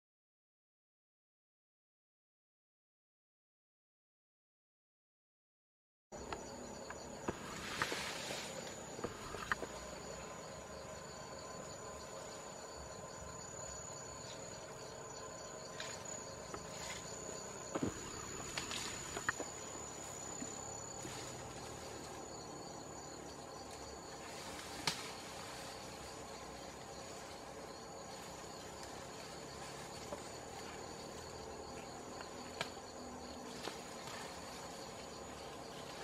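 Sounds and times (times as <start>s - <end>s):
insects chorus: 6.2s - 36.0s
sharp snaps: 24.8s - 25.1s.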